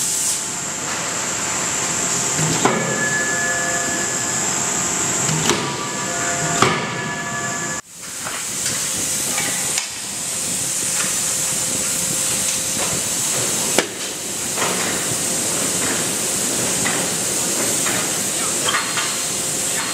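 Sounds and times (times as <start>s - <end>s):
steady hiss: 7.8s - 19.9s.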